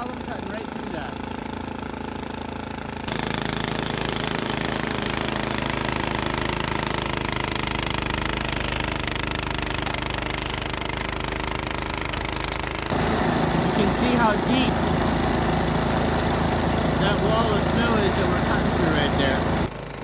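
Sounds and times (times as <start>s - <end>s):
snowblower engine running: 0.0s - 20.0s.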